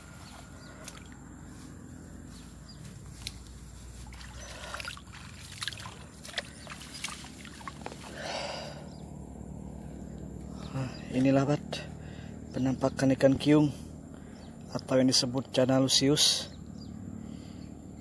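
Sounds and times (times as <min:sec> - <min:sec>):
grass rustling: 0:00.0 - 0:08.7.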